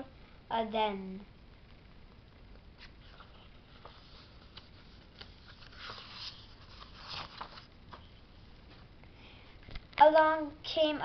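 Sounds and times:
book pages rustling: 2.8 - 8.9.

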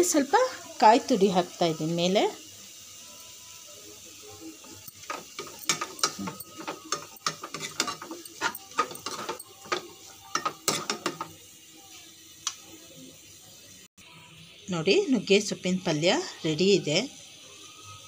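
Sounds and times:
steel ladle scraping a pan: 4.6 - 11.3.

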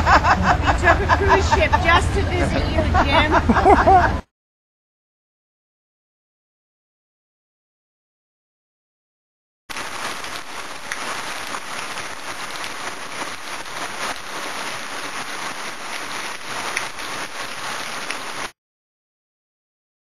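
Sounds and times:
heavy rain on trees: 9.7 - 18.6.

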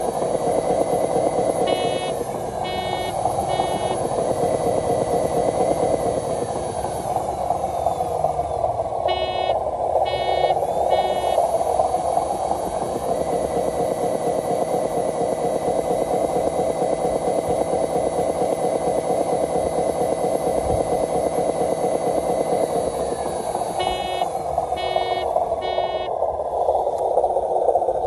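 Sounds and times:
toy truck motor and gearbox: 0.0 - 26.2
faint motor whine: 0.0 - 28.0
short electronic beeps: 1.6 - 4.0, 9.1 - 11.4, 23.8 - 26.1.

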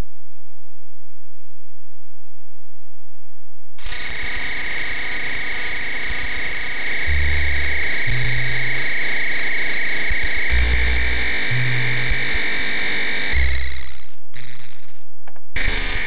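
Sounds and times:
low electronic droning tones: 0.0 - 16.0
dense electronic noise with high tones: 3.8 - 16.0.

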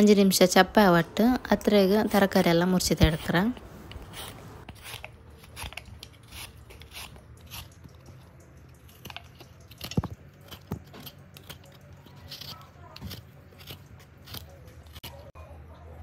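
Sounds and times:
peeler scraping potato skin: 1.9 - 15.4.

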